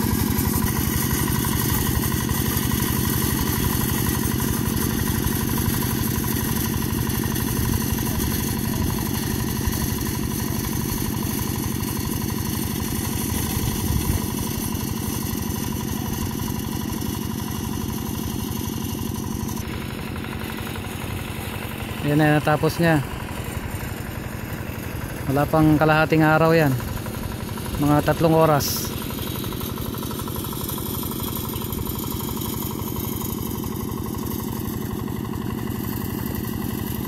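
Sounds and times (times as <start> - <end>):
tractor engine running: 0.0 - 37.0.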